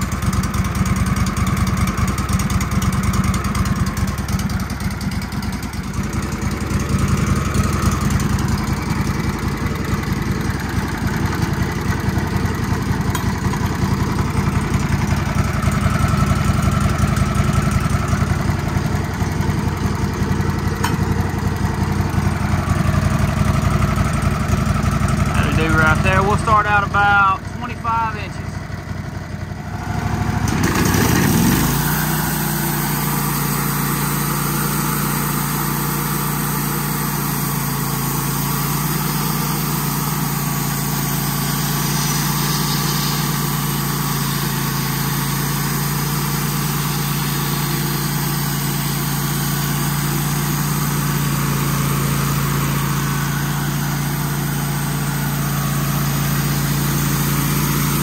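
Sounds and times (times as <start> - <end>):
sawmill engine revving: 0.0 - 58.0
band saw cutting log: 30.4 - 58.0.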